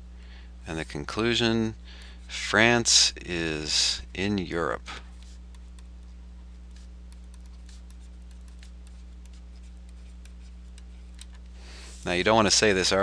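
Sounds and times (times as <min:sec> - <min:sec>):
low electrical hum: 0:00.0 - 0:13.0
pen scratching while writing: 0:06.7 - 0:11.0.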